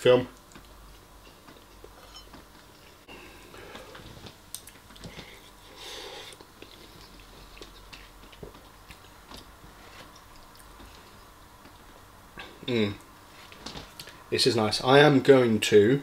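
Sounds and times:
close chewing: 0:06.2 - 0:11.9.

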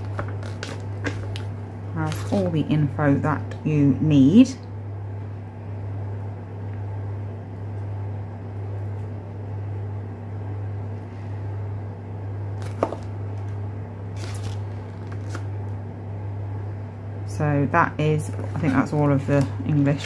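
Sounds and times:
paper rustling: 0:00.0 - 0:02.5, 0:12.6 - 0:15.5
steady low hum: 0:00.0 - 0:20.0.

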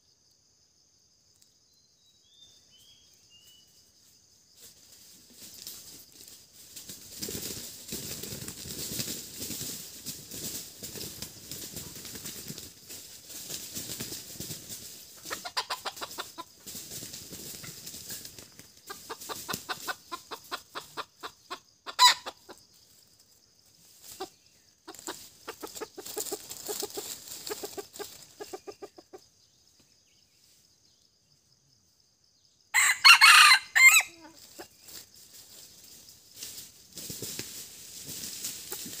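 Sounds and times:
rooster clucking: 0:15.2 - 0:16.6, 0:18.9 - 0:22.6, 0:24.9 - 0:29.2
rooster crowing: 0:32.8 - 0:34.3
sharp rooster call: 0:32.8 - 0:34.3.

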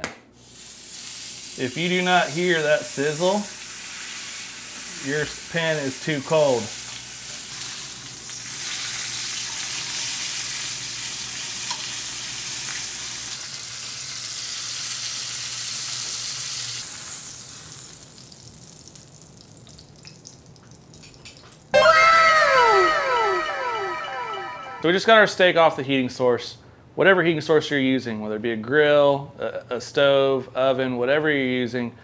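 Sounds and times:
steak sizzling in a pan: 0:00.4 - 0:19.1.

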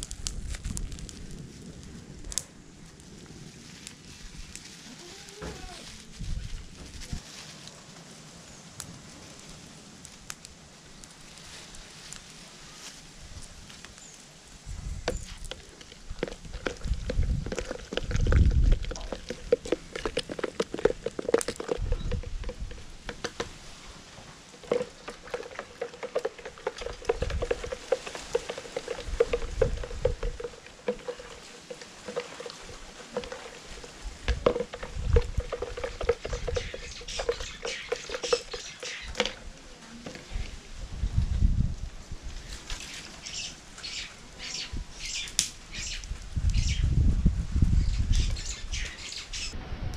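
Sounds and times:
stick stirring in plastic jug: 0:15.2 - 0:23.5, 0:24.6 - 0:40.3.

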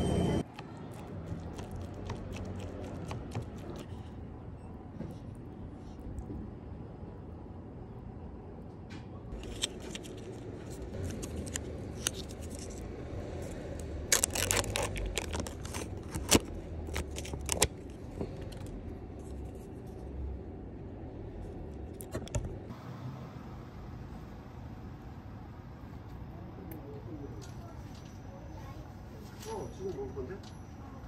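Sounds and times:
low steady hum: 0:00.0 - 0:29.2
plastic packaging crinkling: 0:00.5 - 0:03.9, 0:09.4 - 0:12.8, 0:14.0 - 0:18.0.

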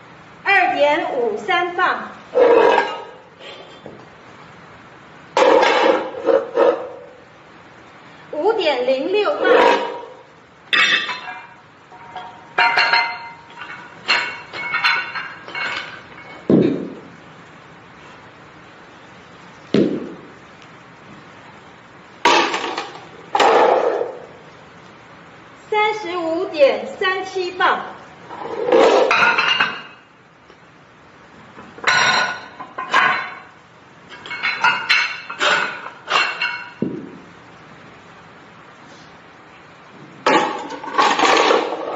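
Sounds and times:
metal objects clinking together: 0:10.8 - 0:16.5
heavy dull thud: 0:19.7 - 0:20.3.

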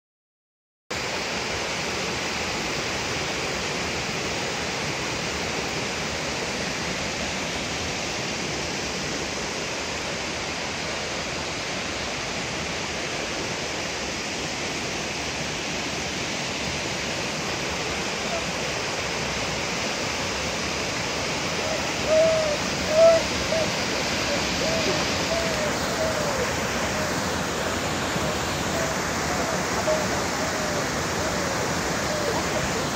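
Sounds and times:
water rushing over boulders: 0:00.9 - 0:32.9
short high calls: 0:21.5 - 0:32.9.

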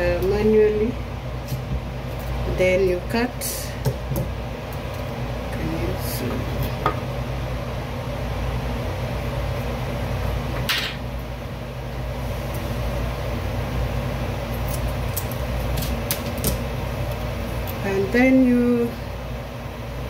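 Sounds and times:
low background hum: 0:00.0 - 0:20.0.

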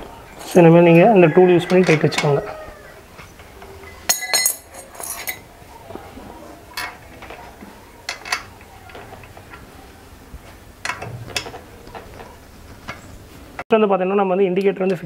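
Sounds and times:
spanner clinking on metal: 0:01.6 - 0:02.4, 0:03.4 - 0:05.5, 0:08.0 - 0:09.6.

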